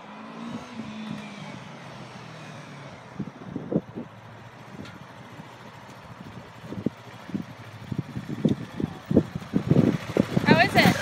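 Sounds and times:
motorcycle engine passing slowly: 0.0s - 11.0s.

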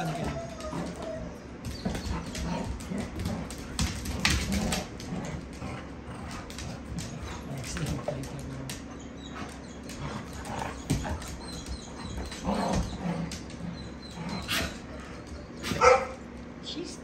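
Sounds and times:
dogs whimpering and yipping: 0.0s - 2.5s, 8.9s - 16.1s
paws clicking on hardwood floor: 0.0s - 16.6s.

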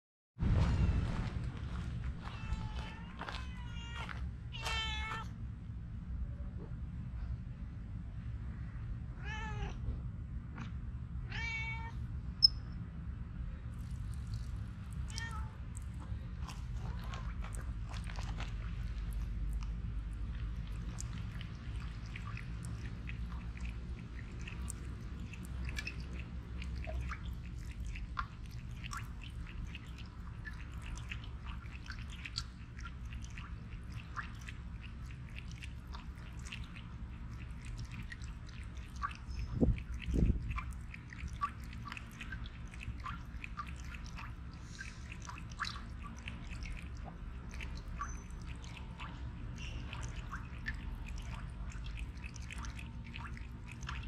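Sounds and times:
cat lapping water: 13.7s - 54.0s
faucet water stream: 13.7s - 54.0s.

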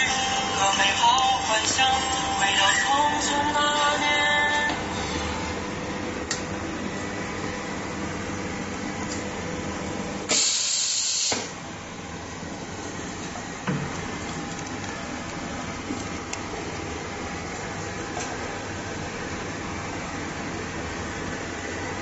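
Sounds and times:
machine and room noise: 0.0s - 22.0s
pneumatic air hiss: 10.3s - 11.5s.

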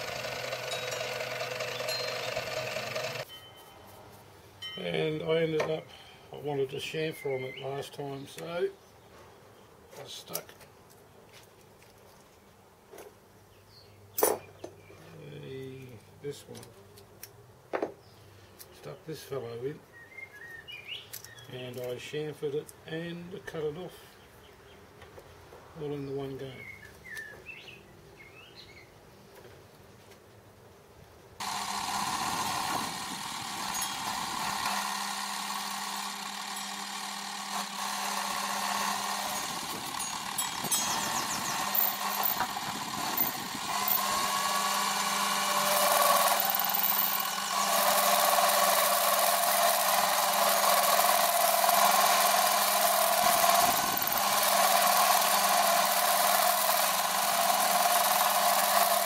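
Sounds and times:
lathe motor hum: 0.0s - 3.3s, 31.4s - 59.0s
lathe tool cutting metal: 0.0s - 3.3s, 31.4s - 59.0s.

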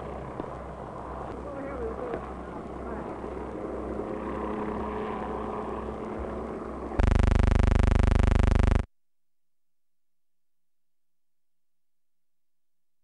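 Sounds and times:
steady low hum: 0.0s - 8.9s
loud harsh pulsing buzz: 7.0s - 8.9s.

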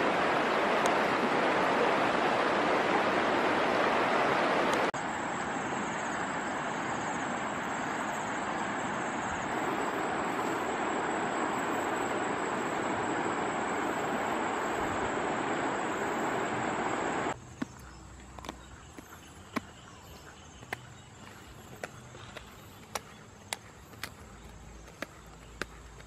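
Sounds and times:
fast-flowing river rushing: 0.0s - 4.9s, 6.2s - 17.4s.

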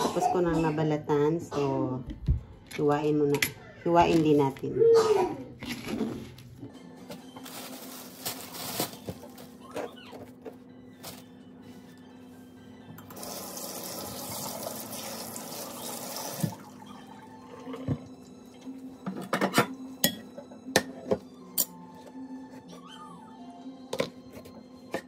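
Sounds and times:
kitchen tap running into sink: 13.1s - 16.7s.

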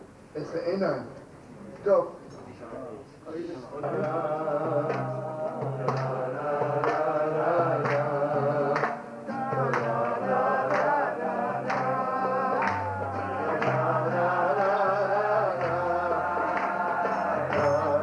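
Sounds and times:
acoustic guitar strumming: 3.8s - 18.0s
man singing: 3.8s - 18.0s.

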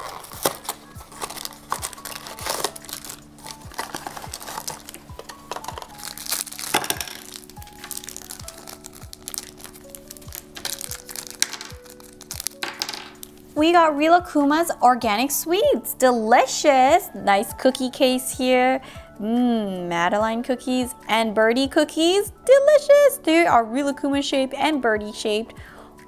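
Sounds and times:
plastic wrapping crinkling: 0.0s - 13.4s
soft background music with beat: 0.0s - 26.0s.

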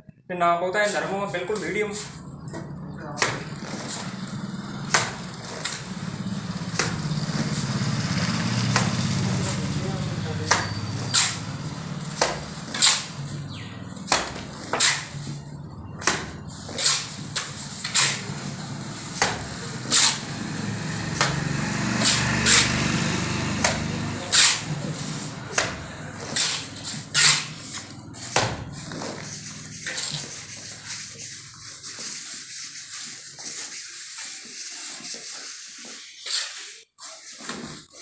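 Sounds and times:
trowel scraping mortar on bricks: 0.8s - 38.0s
wet mortar slaps: 4.8s - 6.0s, 6.7s - 7.6s, 8.6s - 9.0s, 10.4s - 11.4s, 12.1s - 13.2s, 14.0s - 15.2s, 16.0s - 18.4s, 19.2s - 20.3s, 23.6s - 24.7s, 25.5s - 29.2s.

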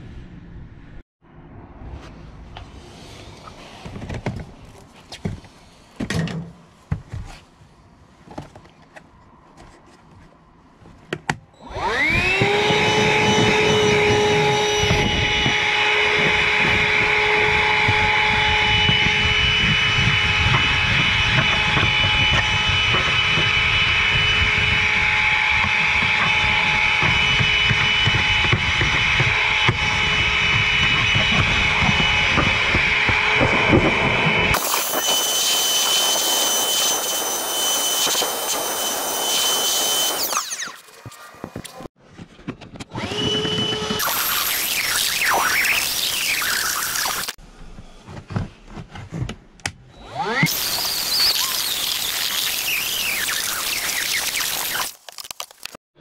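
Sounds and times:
hand vacuum whining: 11.6s - 41.9s, 42.9s - 47.4s, 50.0s - 54.9s.

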